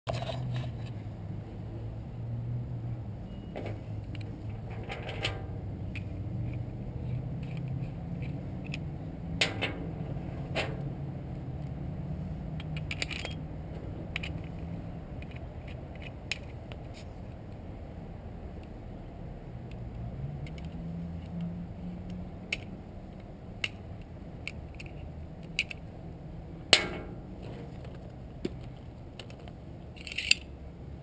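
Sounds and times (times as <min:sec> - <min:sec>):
metallic clicks and clinks: 0:12.6 - 0:13.4, 0:28.6 - 0:30.5.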